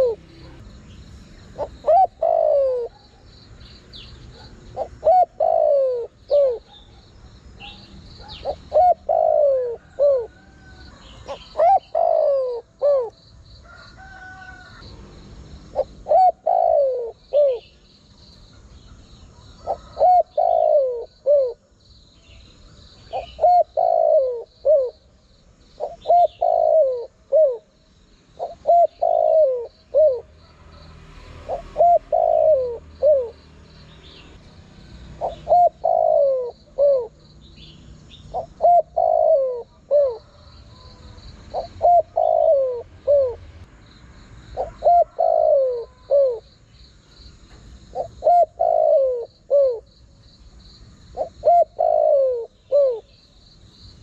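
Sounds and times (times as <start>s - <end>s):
dove cooing: 0.0s - 3.3s, 3.9s - 14.8s, 15.7s - 17.8s, 18.5s - 21.7s, 23.0s - 25.2s, 25.8s - 30.7s, 31.4s - 33.4s, 35.0s - 37.3s, 38.2s - 43.5s, 44.6s - 46.5s, 47.4s - 49.9s, 51.1s - 53.2s.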